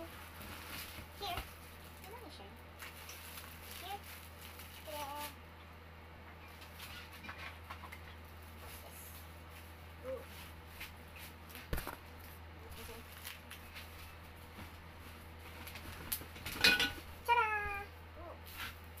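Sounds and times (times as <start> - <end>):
plastic wrapping rustling: 0.0 - 5.4
steady low hum: 0.0 - 19.0.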